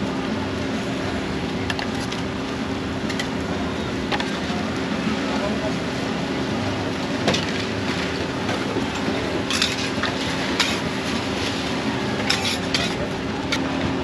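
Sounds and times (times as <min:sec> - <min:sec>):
steady background noise: 0:00.0 - 0:14.0
metal spatula scraping on griddle: 0:12.3 - 0:13.0.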